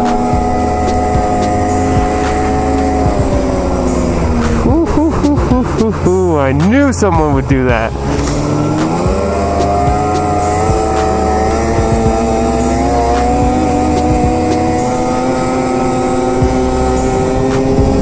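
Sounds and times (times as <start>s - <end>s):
snowmobile engine running hard: 0.0s - 18.0s.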